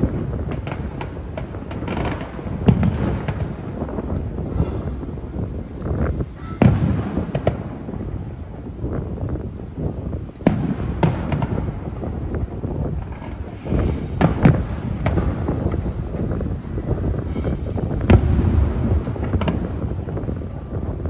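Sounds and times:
distant firework bangs: 0:00.0 - 0:21.0.

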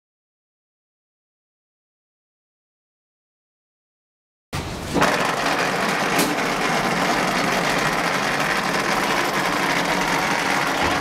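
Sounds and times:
machine mechanical drone: 0:04.6 - 0:11.0.

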